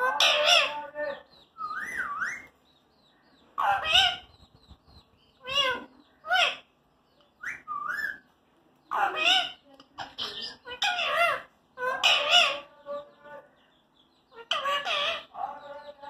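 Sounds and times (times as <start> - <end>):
parakeet whistling and calling: 0.0 - 2.5, 7.4 - 8.3.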